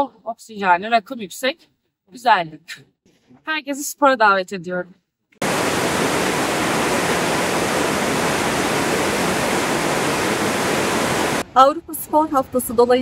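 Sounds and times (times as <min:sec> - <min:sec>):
waterfall rushing: 0:05.4 - 0:11.4.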